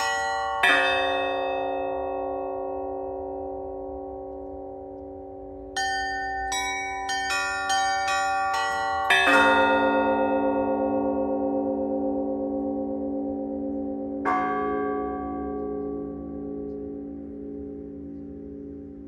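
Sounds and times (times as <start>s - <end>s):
heavy low bell ringing out: 0.0s - 19.0s
small church bells ringing: 0.0s - 19.0s.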